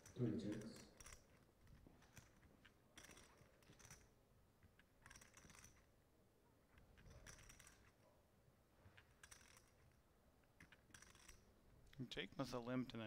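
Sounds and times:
poker chips clicking: 0:00.0 - 0:05.9.

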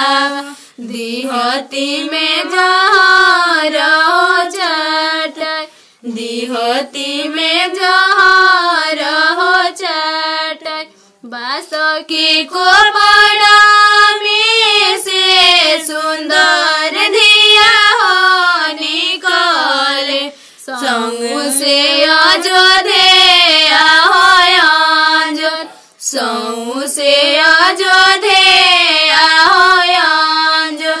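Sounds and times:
woman singing folk song: 0:13.7 - 0:28.2.

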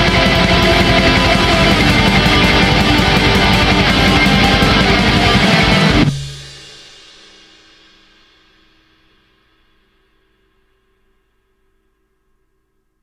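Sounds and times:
heavy metal song: 0:00.0 - 0:06.9.

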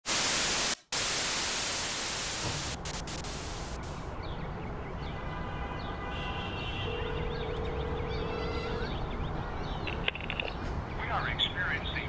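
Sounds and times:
television static hiss: 0:00.1 - 0:04.1.

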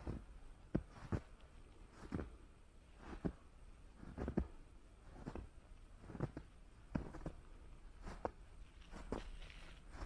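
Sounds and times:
footsteps crunching in snow: 0:05.1 - 0:10.0.

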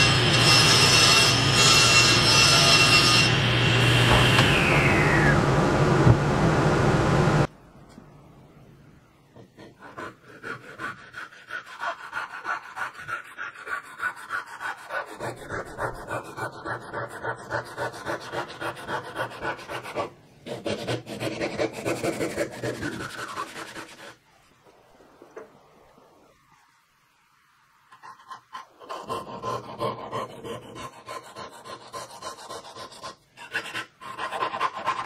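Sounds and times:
hand saw cutting wood: 0:00.0 - 0:04.5, 0:09.5 - 0:24.2, 0:28.9 - 0:35.0.

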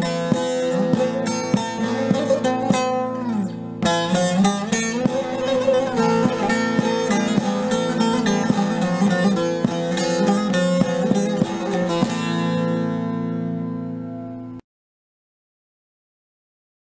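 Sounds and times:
plucked string instrument music: 0:00.0 - 0:14.6.

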